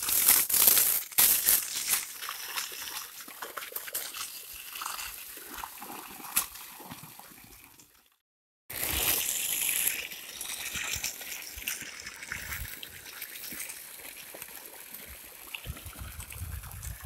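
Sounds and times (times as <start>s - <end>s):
water gushing from hose splashing: 0.0s - 7.6s, 8.7s - 17.0s.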